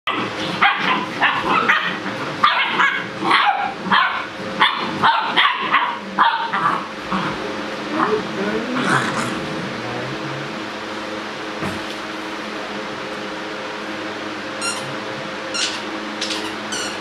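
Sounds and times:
puppies barking and yipping: 0.1s - 7.0s, 14.6s - 17.0s.

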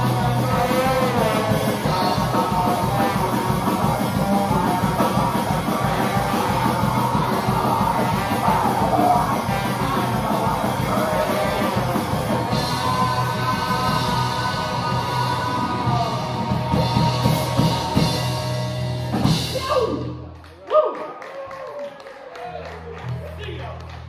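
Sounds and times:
live rock band playing: 0.0s - 20.3s
person shouting: 19.5s - 20.1s.

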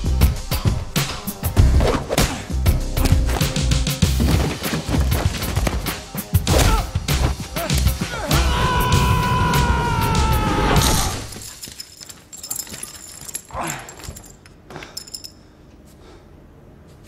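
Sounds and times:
debris clicking and rattling: 11.3s - 15.4s
faint metallic jingling: 11.4s - 15.9s.

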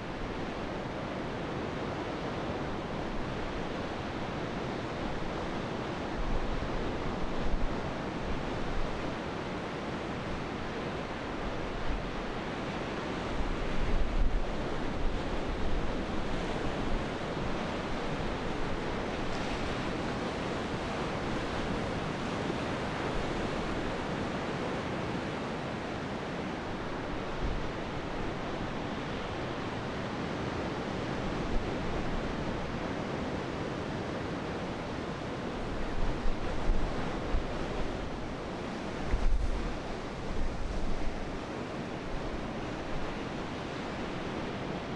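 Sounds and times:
surf washing: 0.0s - 44.9s
wind buffeting microphone: 35.6s - 41.4s.

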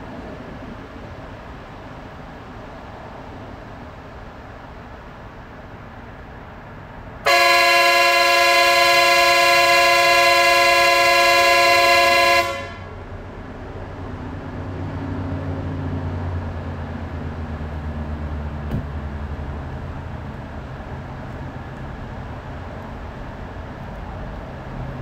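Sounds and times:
train horn blast: 7.3s - 13.1s.

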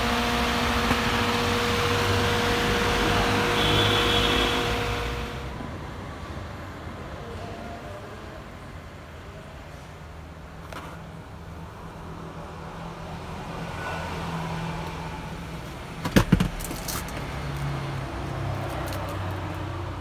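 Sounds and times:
car engine humming: 0.0s - 5.9s.

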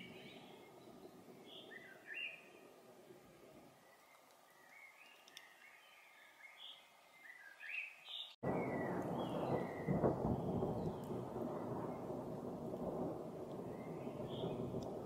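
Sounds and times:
songbird chirping: 0.0s - 15.0s
thunder rumbling: 8.4s - 15.0s.

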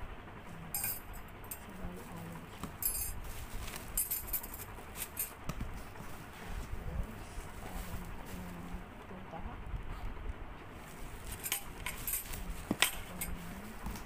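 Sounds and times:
bubble wrap crinkling: 1.7s - 8.9s, 10.7s - 14.0s.

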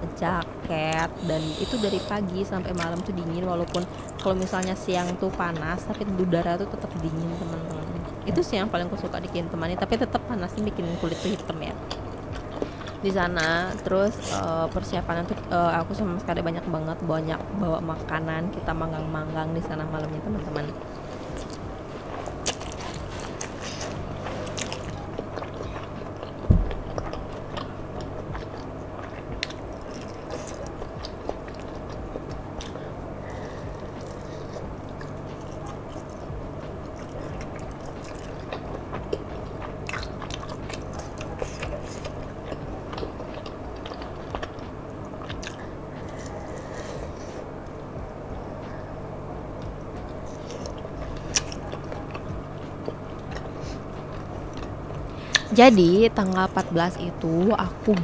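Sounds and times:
low hum: 0.0s - 58.0s
person chewing and biting: 1.1s - 6.0s, 10.5s - 14.9s, 20.8s - 48.9s, 49.5s - 55.5s.

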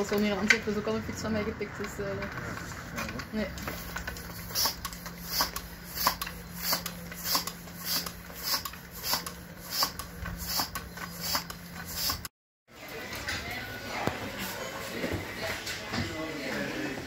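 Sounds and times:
bicycle pump hissing: 3.7s - 12.3s.

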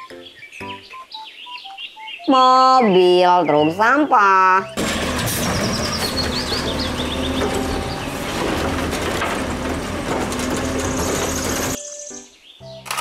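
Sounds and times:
garbage truck hydraulic arm whining: 4.8s - 11.8s.

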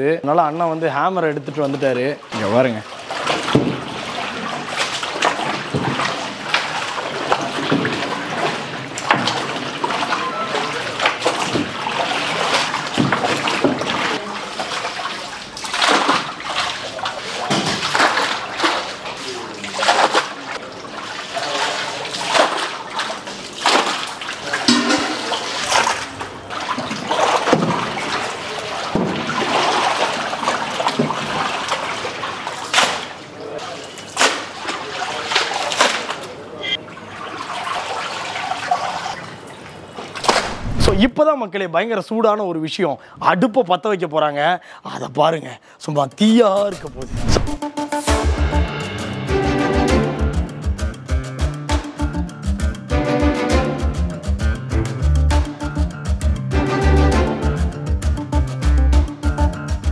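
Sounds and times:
water sloshing in metal pot: 1.4s - 36.3s.

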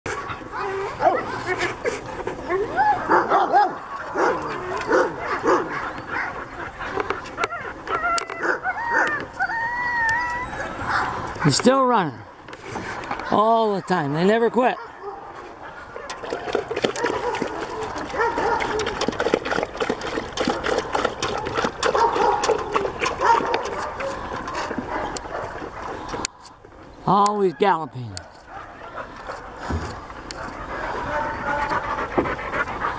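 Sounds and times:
dogs barking and yipping: 0.1s - 26.6s, 27.2s - 32.9s
dog whining: 6.9s - 11.2s
dogs lapping water from metal bucket: 15.7s - 26.2s.

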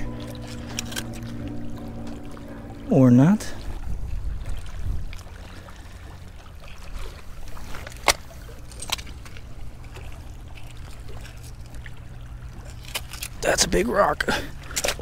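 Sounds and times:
wind rumbling on microphone: 0.0s - 8.6s
faint steady hum: 0.0s - 15.0s.

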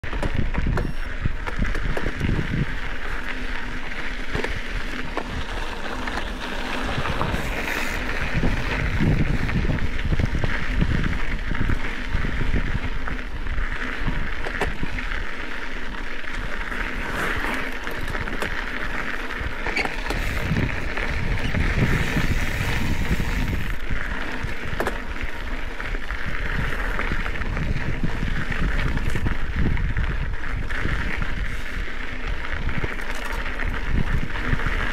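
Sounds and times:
wind gusts on microphone: 0.0s - 3.2s, 4.2s - 15.0s, 19.3s - 25.2s, 25.9s - 34.9s
bike clicks and knocks: 0.0s - 34.9s
bike tyres hissing on dirt: 1.1s - 34.9s.

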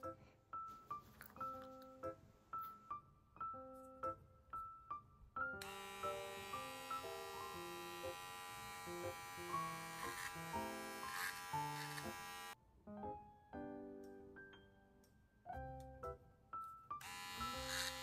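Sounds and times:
electric paw trimmer buzzing: 5.6s - 12.6s, 17.0s - 18.0s.

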